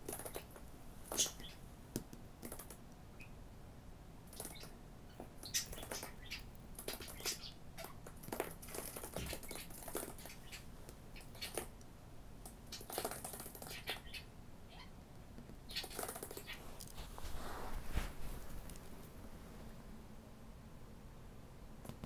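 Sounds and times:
bird claws and beak tapping: 0.0 - 3.0, 6.8 - 11.8
light rustling: 16.0 - 19.6.

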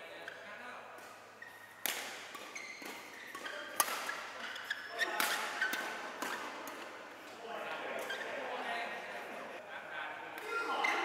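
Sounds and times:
racket hitting shuttlecock: 1.0 - 7.0
shoe squeaks: 1.4 - 6.8, 8.0 - 8.4, 10.8 - 11.0.

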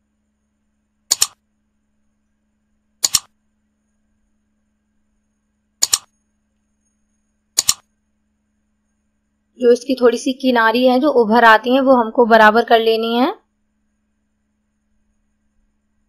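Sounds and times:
faint steady hum: 0.0 - 16.0
mouse double clicks: 1.1 - 1.4, 3.0 - 3.3, 5.8 - 6.1, 7.6 - 7.9.

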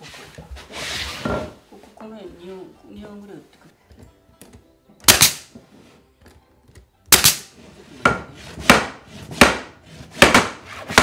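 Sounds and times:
hammer driving nails into wood: 5.0 - 5.6, 7.1 - 11.0.

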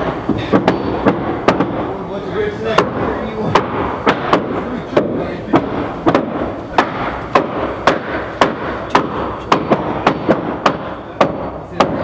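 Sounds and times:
sharp cracking impacts: 2.8 - 11.0.

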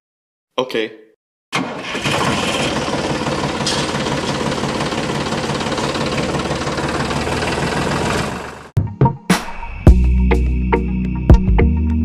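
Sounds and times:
tractor engine idling: 1.6 - 8.7.

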